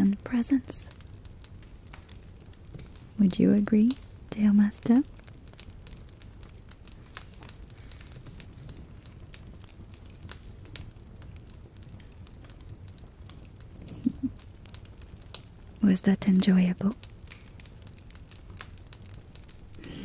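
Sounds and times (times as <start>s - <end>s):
low steady rumble: 0.0s - 20.0s
soft crackling pops: 0.0s - 20.0s.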